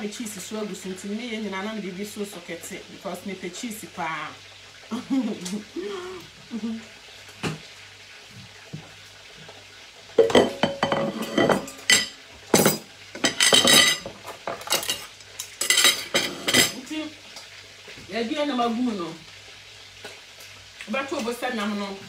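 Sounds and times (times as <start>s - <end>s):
metal pots and pans clattering: 10.2s - 16.8s.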